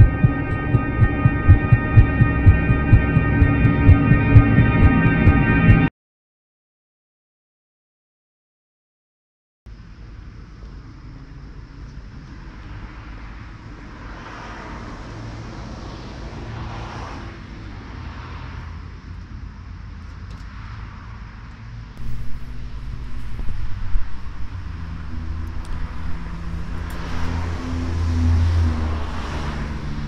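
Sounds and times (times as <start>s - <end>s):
vehicles passing: 0.0s - 4.9s, 12.5s - 30.0s
distant road traffic rumble: 10.2s - 30.0s.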